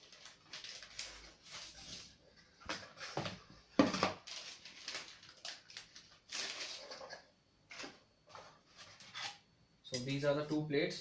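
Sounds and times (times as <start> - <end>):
plastic bag crinkling: 0.0 - 2.1, 4.0 - 7.2.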